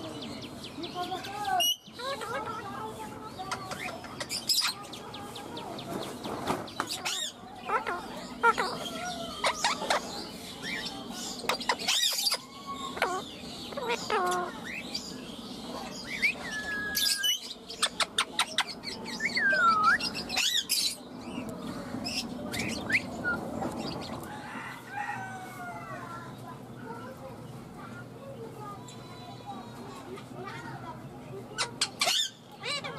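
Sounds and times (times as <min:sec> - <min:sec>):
parakeet chirps and squawks: 0:06.9 - 0:15.1, 0:15.7 - 0:21.0, 0:31.6 - 0:32.9.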